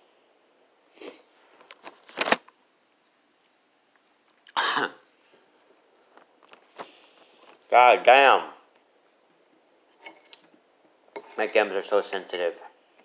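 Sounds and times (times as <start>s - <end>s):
person coughing: 4.5s - 5.0s.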